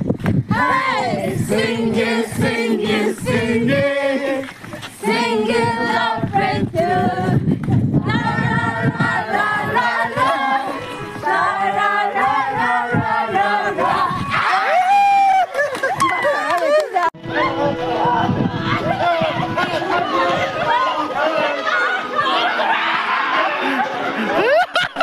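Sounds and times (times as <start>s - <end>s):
group singing without instruments: 0.5s - 14.3s.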